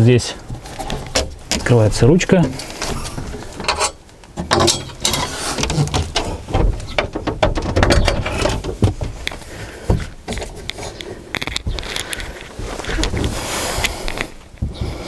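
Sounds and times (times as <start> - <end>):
metal bed frame clunking and rattling: 0.5 - 10.8.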